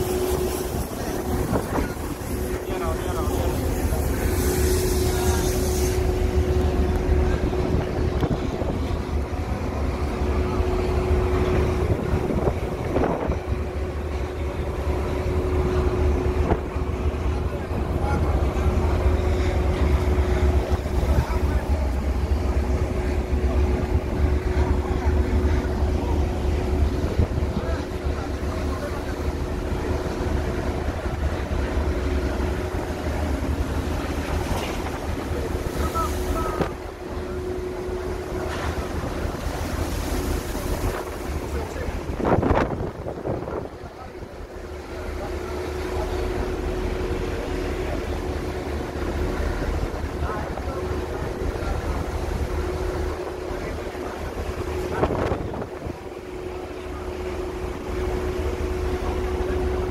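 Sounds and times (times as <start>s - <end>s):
machinery hum: 0.0s - 59.9s
ship engines rumbling: 0.0s - 59.9s
water washing along hull: 0.0s - 59.9s
wind buffeting microphone: 0.1s - 2.8s, 10.8s - 14.2s, 39.0s - 44.0s.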